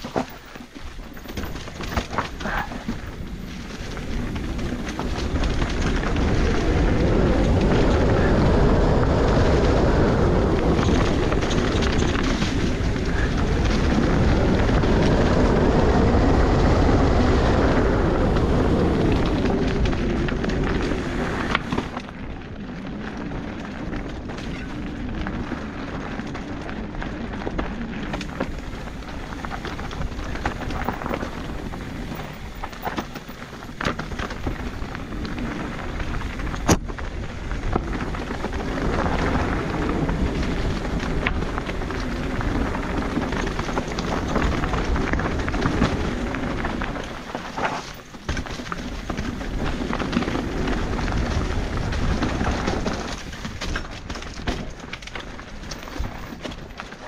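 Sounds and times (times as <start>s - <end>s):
bike knocking and rattling: 0.0s - 57.0s
tyres rumbling on dirt trail: 0.0s - 57.0s
wind buffeting microphone: 0.0s - 57.0s.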